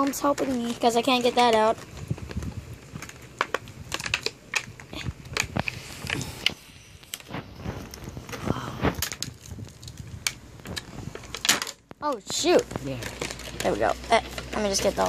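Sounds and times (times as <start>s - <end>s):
plastic packaging crinkling: 0.0s - 15.0s.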